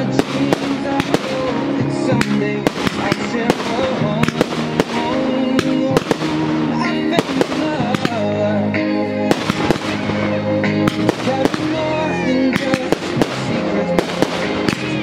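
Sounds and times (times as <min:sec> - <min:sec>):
fireworks bursting and crackling: 0:00.0 - 0:08.5, 0:09.2 - 0:15.0
music playing: 0:00.0 - 0:15.0.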